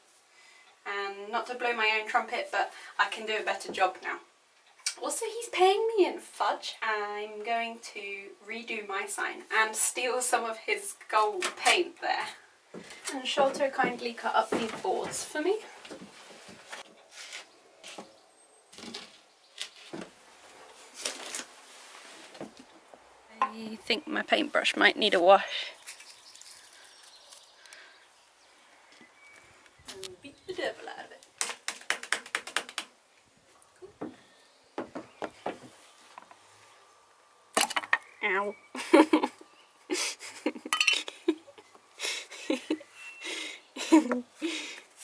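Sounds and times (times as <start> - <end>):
footsteps: 12.7 - 18.2, 33.5 - 36.4
soft rustling: 12.7 - 18.2, 18.8 - 23.1.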